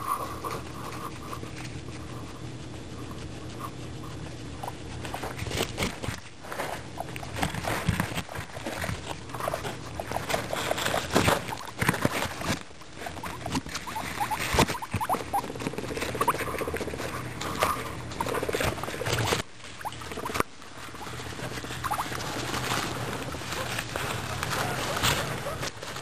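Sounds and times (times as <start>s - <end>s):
guinea pigs crunching carrot: 0.0s - 26.0s.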